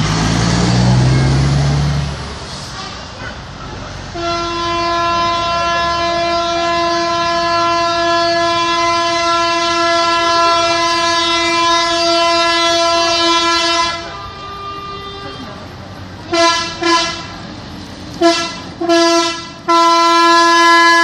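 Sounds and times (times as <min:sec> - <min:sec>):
truck air horn: 0:02.5 - 0:03.4, 0:04.1 - 0:15.6, 0:16.2 - 0:17.4, 0:18.2 - 0:21.0.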